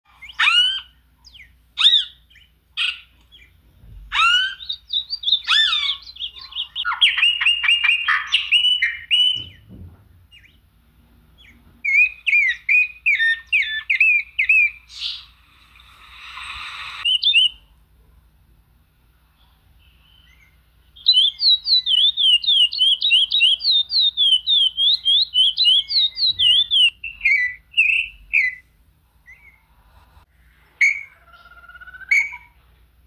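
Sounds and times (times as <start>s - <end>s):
songbirds whistling and chirping: 0.1s - 9.7s, 10.3s - 10.6s, 11.4s - 17.7s, 19.8s - 29.7s, 30.4s - 32.6s
harsh hissing bird call: 14.0s - 17.5s.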